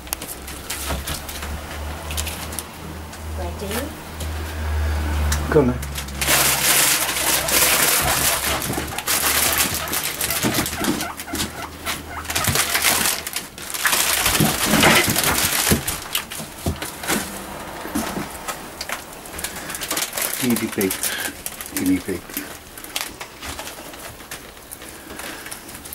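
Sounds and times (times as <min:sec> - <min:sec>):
crinkling rustle of bedding: 0:05.8 - 0:25.9
guinea pig coo-like calls: 0:07.1 - 0:13.2.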